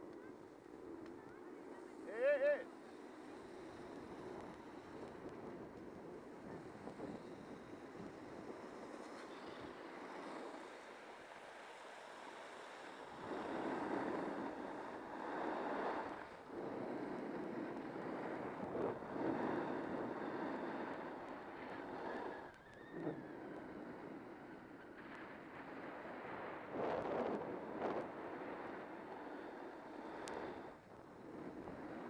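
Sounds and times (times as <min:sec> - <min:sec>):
skis scraping over snow: 0:02.0 - 0:22.3
wind on microphone: 0:03.1 - 0:11.3, 0:12.2 - 0:32.0.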